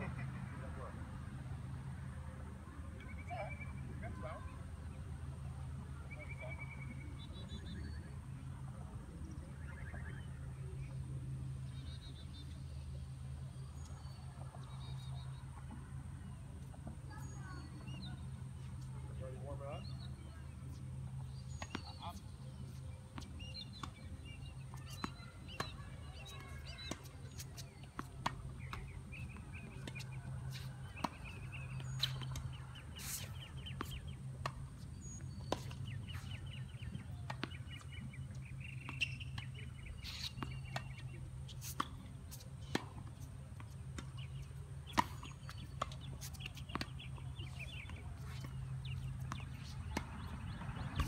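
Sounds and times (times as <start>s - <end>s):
birds chirping trills: 17.1s - 51.0s.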